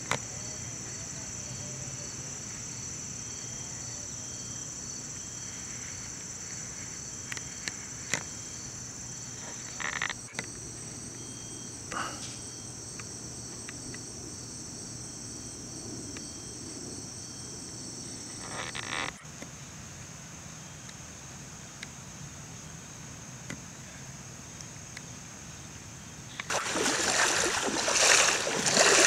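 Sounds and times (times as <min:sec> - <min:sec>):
louder insect chirps: 0:00.0 - 0:19.7, 0:26.3 - 0:29.0
insects trilling: 0:00.0 - 0:29.0.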